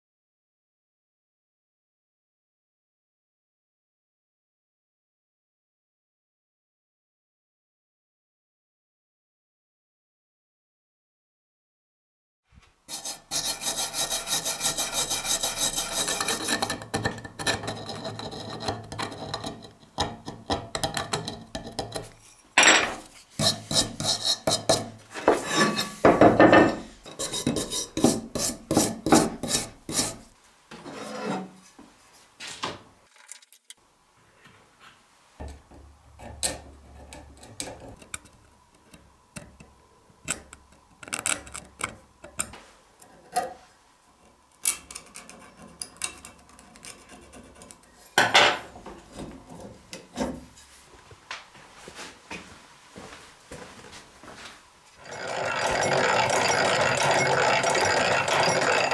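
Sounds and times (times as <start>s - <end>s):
wire brush scrubbing metal and wood: 12.9s - 16.8s, 23.1s - 26.2s, 27.0s - 30.3s, 55.0s - 58.9s.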